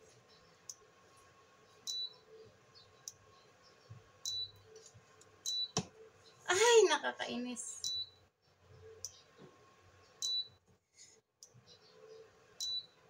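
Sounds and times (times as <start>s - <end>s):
cooktop beeps: 4.2s - 4.6s, 5.4s - 5.8s, 7.8s - 8.2s, 10.2s - 10.6s, 12.6s - 13.0s.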